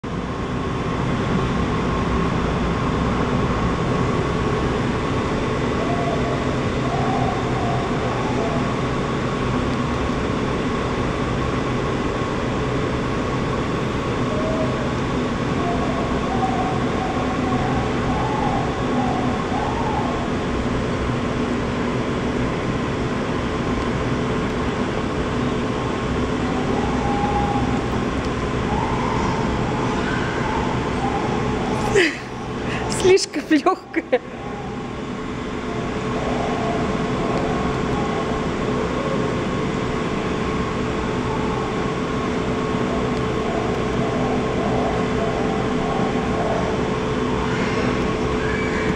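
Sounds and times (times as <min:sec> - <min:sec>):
steady hum: 0:00.0 - 0:48.9
roar of rushing air and fans: 0:00.1 - 0:48.9.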